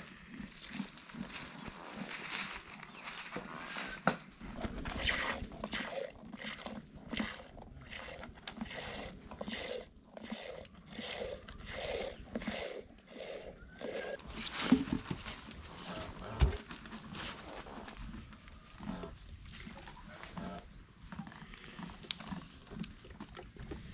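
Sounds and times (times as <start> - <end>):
milk squirting into glass jar: 4.8 - 14.2.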